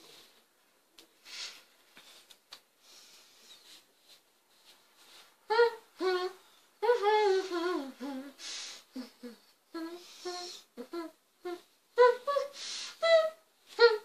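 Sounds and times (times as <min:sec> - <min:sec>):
short breathy hiss: 0:01.2 - 0:03.8, 0:08.4 - 0:08.9.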